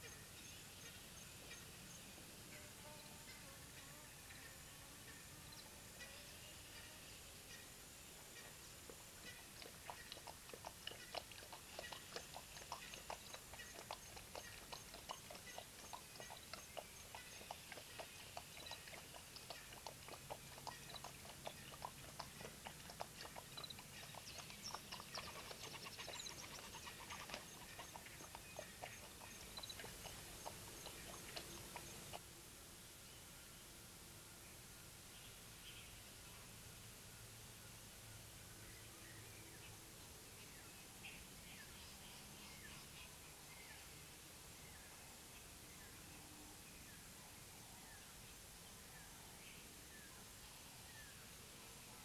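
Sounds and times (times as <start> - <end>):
animal lapping water: 8.2 - 32.2
faint high chirps: 23.3 - 32.2.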